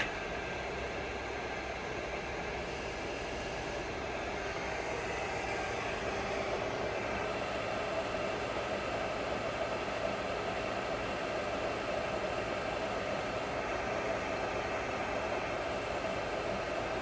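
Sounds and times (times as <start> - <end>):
milling machine mechanical whir: 0.0 - 9.0.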